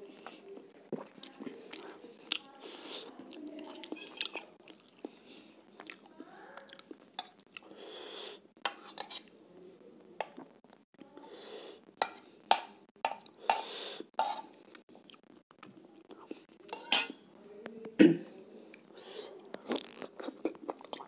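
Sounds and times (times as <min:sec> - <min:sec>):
metal spoon scraping steel bowl: 0:08.7 - 0:09.3, 0:12.0 - 0:14.6, 0:16.7 - 0:17.2.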